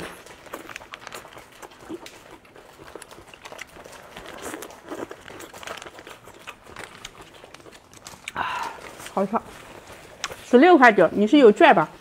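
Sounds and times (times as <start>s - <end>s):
plastic sachets tearing open: 0.0s - 9.3s
plastic sachets crinkling: 0.0s - 11.6s.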